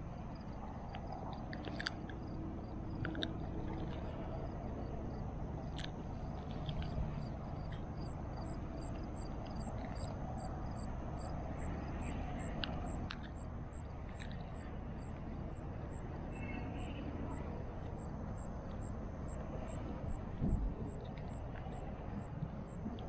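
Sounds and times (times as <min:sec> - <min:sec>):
wind rumbling on microphone: 0:00.0 - 0:23.0
faint high chirp: 0:16.2 - 0:18.9.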